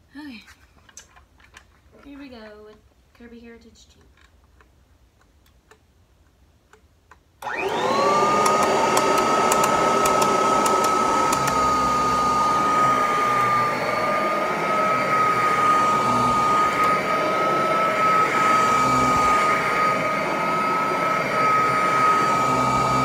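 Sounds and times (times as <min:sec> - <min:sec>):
vacuum cleaner running whine: 0:07.4 - 0:23.0.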